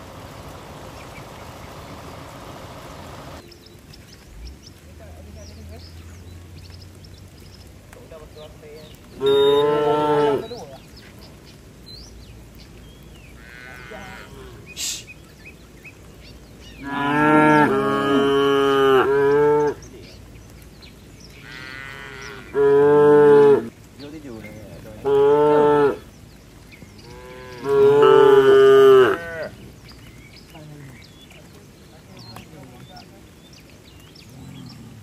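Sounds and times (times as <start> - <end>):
cattle mooing: 9.2 - 10.7, 13.4 - 14.7, 16.8 - 19.8, 21.4 - 23.7, 24.9 - 26.0, 27.0 - 29.6.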